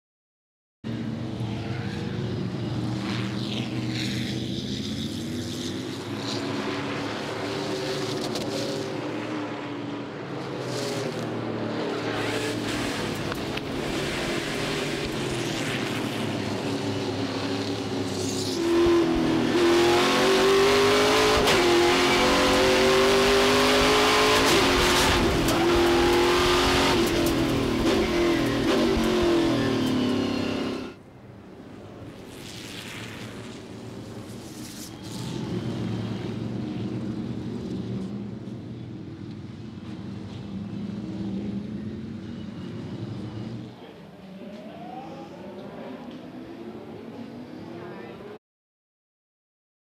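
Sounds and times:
race car engines revving: 0:00.9 - 0:31.0, 0:32.0 - 0:48.4.

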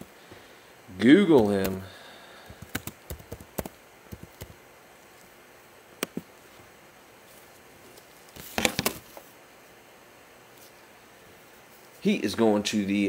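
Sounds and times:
keyboard keys clicking: 0:02.6 - 0:04.6.

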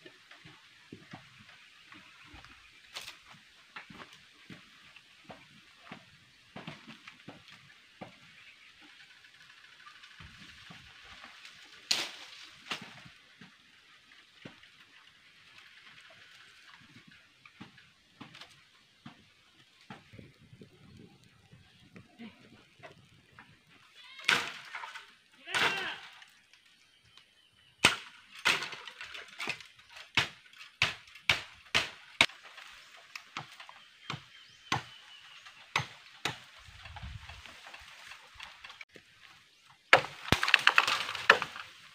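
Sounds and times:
wood fire crackling: 0:00.0 - 0:41.9
machete chopping bamboo: 0:27.8 - 0:32.4, 0:35.7 - 0:36.6, 0:39.9 - 0:41.7
sticks snapping: 0:39.9 - 0:41.7.

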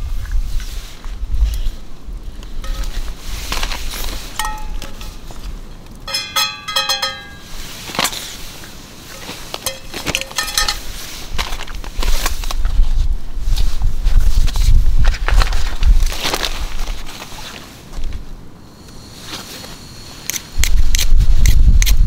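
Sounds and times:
metal bowl clinking: 0:04.3 - 0:07.8, 0:09.6 - 0:10.9.

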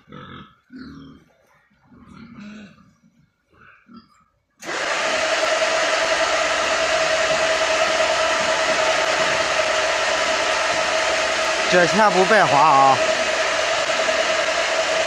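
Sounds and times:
feeding cart motor whirring: 0:04.6 - 0:15.0
steady mid-pitched tone: 0:05.9 - 0:15.0.

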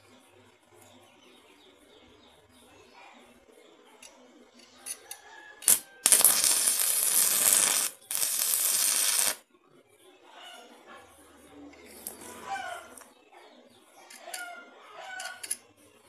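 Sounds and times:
welding rod tapping: 0:04.9 - 0:09.4
welding arc crackling: 0:05.6 - 0:09.4.

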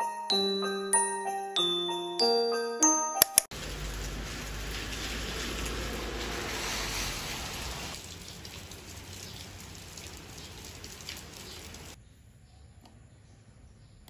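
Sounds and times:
rain splashing on paving: 0:03.5 - 0:12.0.

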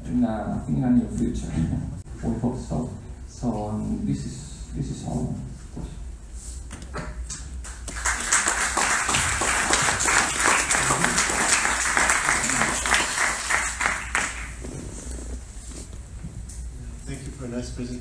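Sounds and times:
audience applauding: 0:07.7 - 0:14.6.

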